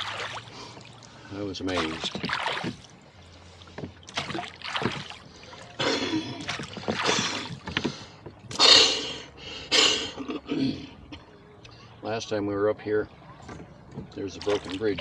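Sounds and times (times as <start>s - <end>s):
water splashing from oars: 0.0s - 8.6s, 13.4s - 15.0s.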